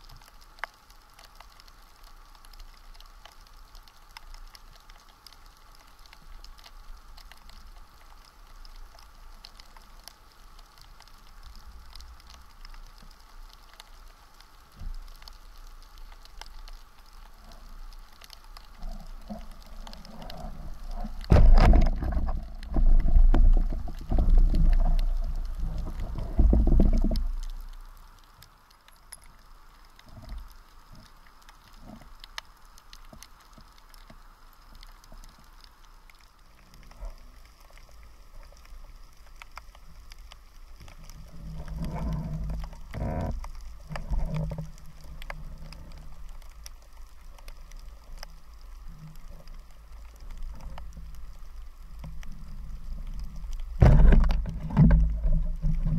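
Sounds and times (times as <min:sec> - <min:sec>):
faint underwater clicks: 0:00.0 - 0:55.9
underwater rumbling and knocking: 0:00.0 - 0:55.9
low underwater thumps: 0:21.2 - 0:24.4, 0:53.8 - 0:55.9.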